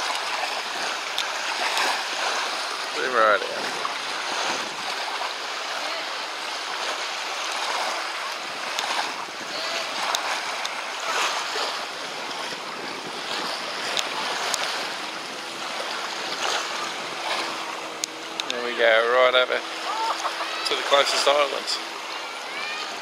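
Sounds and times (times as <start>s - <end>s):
small waves washing on shore: 0.0s - 23.0s
wind on microphone: 3.4s - 5.2s, 7.6s - 18.4s.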